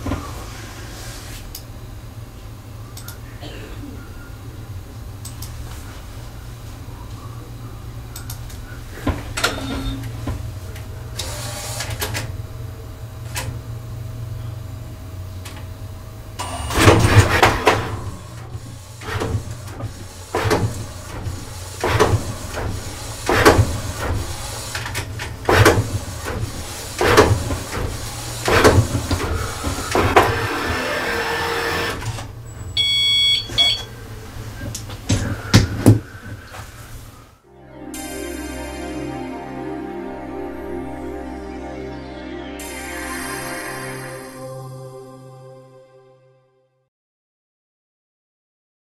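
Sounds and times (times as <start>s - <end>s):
steady hum: 0.4s - 24.8s
printer carriage clatter: 16.4s - 29.3s.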